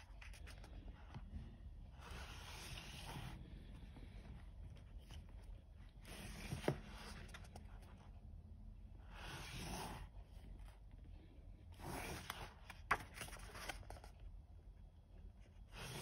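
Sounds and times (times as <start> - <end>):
paper pages turning: 0.0 - 1.3, 11.8 - 14.3.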